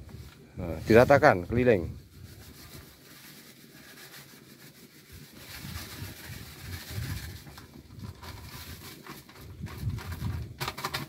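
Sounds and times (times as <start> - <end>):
plastic packet rustling: 2.4 - 11.0.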